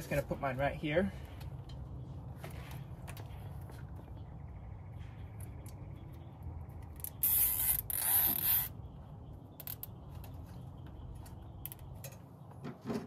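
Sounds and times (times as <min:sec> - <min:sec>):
zip tie rasping: 0:07.2 - 0:08.7.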